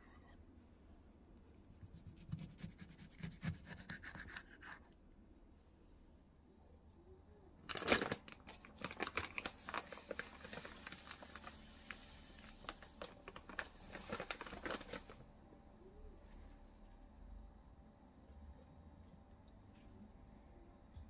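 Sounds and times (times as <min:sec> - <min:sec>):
packaging crinkling and rustling: 0:07.6 - 0:15.2.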